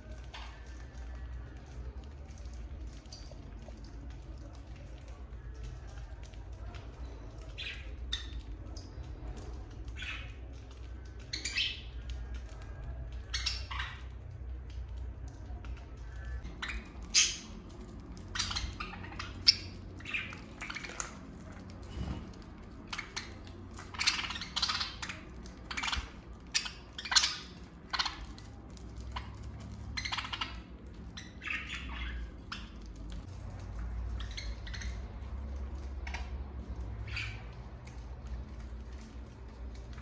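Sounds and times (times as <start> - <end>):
budgerigars chirping: 30.0 - 32.8, 34.2 - 35.1.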